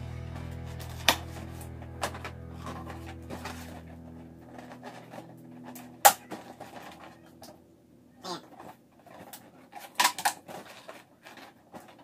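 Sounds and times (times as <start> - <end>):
background music: 0.0 - 7.9.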